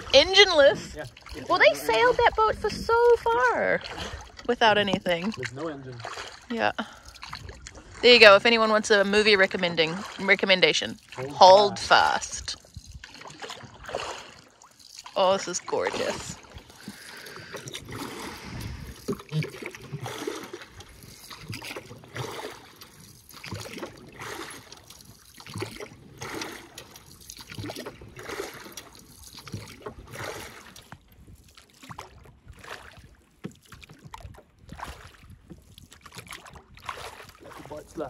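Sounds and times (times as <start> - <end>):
water dripping: 0.0 - 29.8
oars splashing through water: 0.0 - 38.0.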